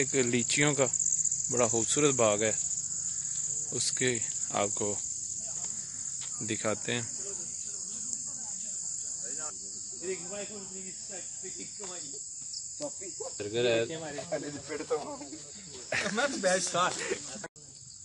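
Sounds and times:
people talking: 0.0 - 2.6, 3.7 - 12.2, 12.8 - 17.5
high-pitched insect chorus: 0.0 - 18.0.

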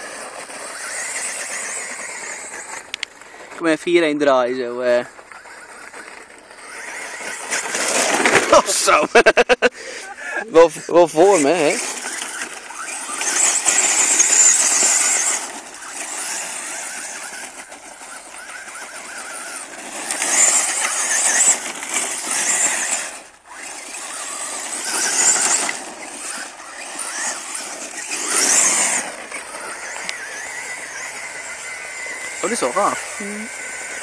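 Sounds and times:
electric motor whining: 0.0 - 34.0
tyres spraying dirt and gravel: 0.0 - 34.0.

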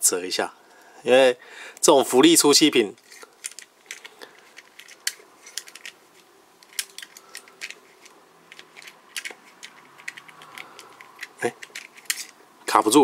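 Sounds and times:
plastic toy clicks and rubbing: 2.9 - 12.4.

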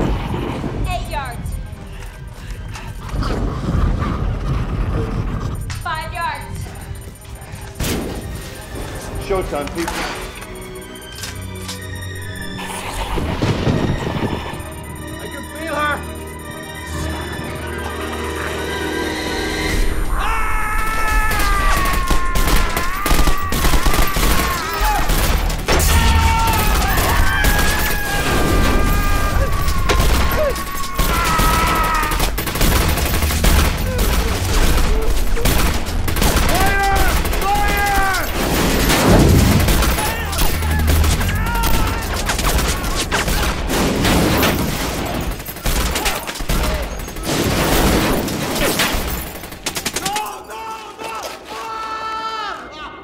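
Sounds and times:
rapid gunfire: 21.3 - 50.3
rapid gunshots: 21.4 - 50.4
deep rumble: 32.2 - 37.4, 38.9 - 42.9.

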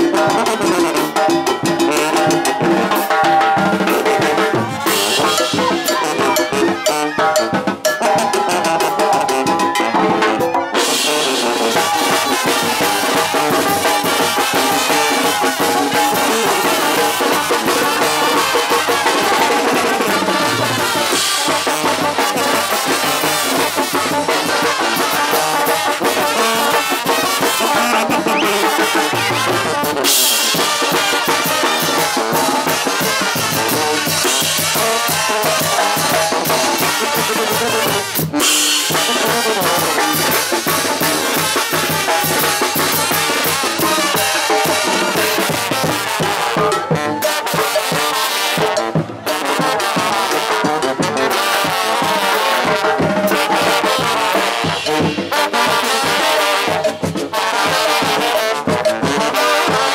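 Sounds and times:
brass band playing dance music: 0.0 - 59.9
snare drum: 0.0 - 59.9
bass drum: 11.2 - 18.5, 19.2 - 30.0.

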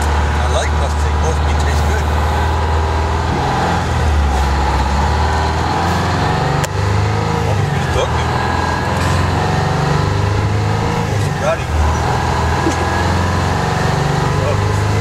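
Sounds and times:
diesel engine drone: 0.0 - 15.0.

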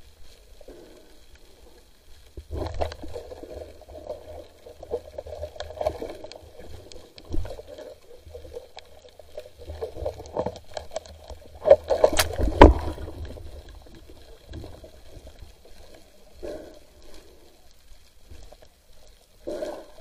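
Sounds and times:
muffled water sloshing and gurgling: 0.0 - 20.0.

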